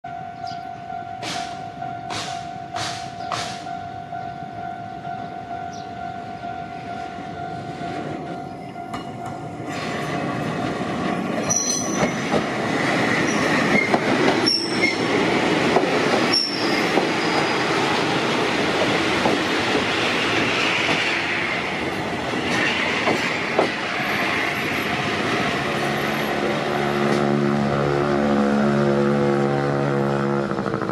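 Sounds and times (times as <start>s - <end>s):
electric train wheels rumbling on rail: 0.1s - 30.9s
high wheel squeals: 11.4s - 12.3s, 13.1s - 15.1s, 16.2s - 17.9s.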